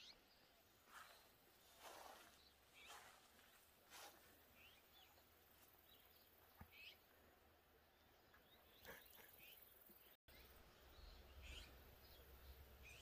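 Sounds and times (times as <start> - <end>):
soft careful footsteps: 0.7 - 6.9.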